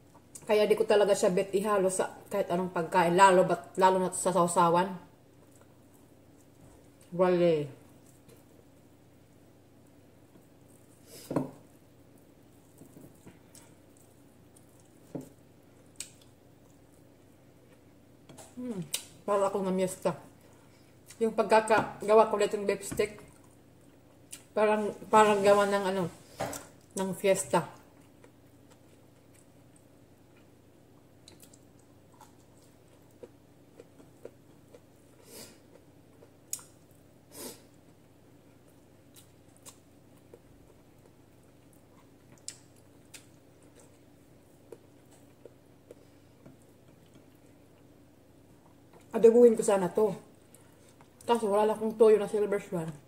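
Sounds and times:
person chewing: 0:12.1 - 0:19.2, 0:27.9 - 0:49.1.

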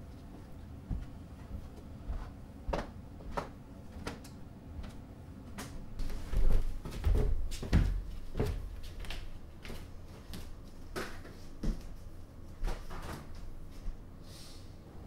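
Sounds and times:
footsteps on kitchen floor: 0:00.2 - 0:04.2, 0:06.0 - 0:12.0.

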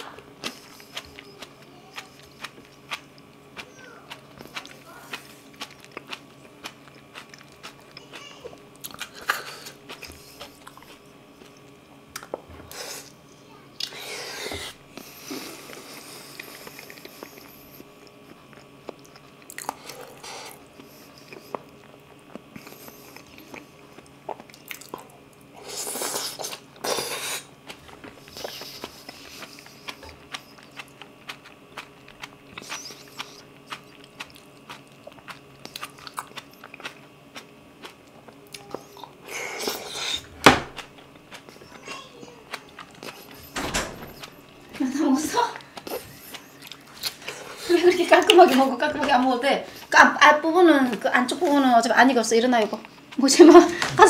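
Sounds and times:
wet chewing and mouth sounds: 0:00.0 - 0:13.2, 0:13.8 - 0:50.0, 0:52.6 - 0:53.8
loud slurps: 0:39.3 - 0:40.4.

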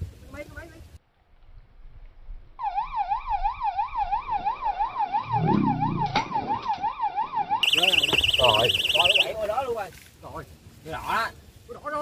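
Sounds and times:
electronic siren-like warbling tone: 0:02.6 - 0:09.3.

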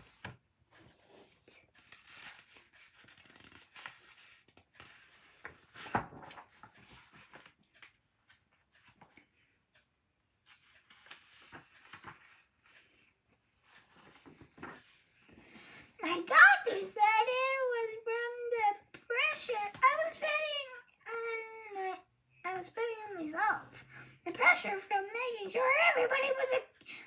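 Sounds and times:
book pages turning: 0:00.0 - 0:15.9.

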